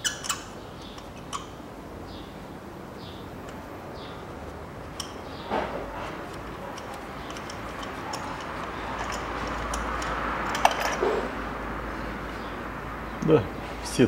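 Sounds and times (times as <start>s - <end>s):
ratchet wrench clicking: 6.8s - 11.0s.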